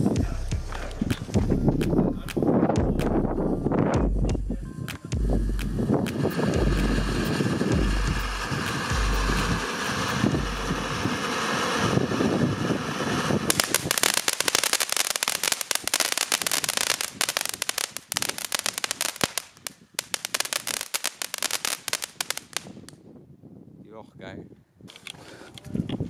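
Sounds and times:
firework fountain hissing and crackling: 5.8s - 22.9s.

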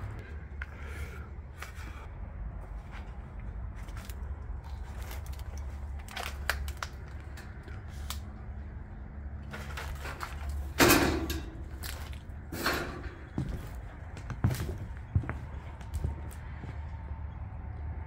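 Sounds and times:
footsteps crunching over debris: 2.6s - 7.4s, 11.5s - 16.9s
loud crunch: 2.8s - 8.2s, 9.4s - 16.8s.

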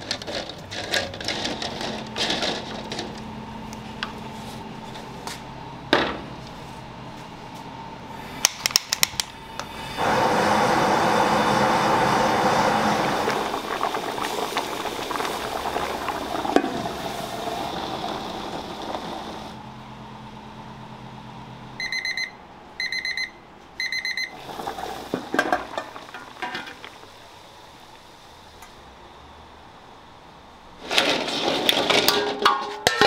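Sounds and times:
gas burner flames rushing: 0.0s - 21.8s, 24.1s - 33.0s
short electronic beeps: 21.8s - 24.3s.

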